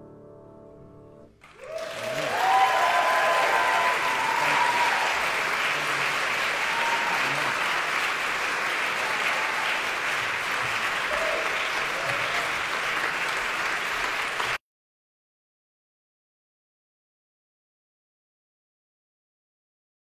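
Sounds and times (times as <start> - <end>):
audience applauding: 1.4 - 14.6.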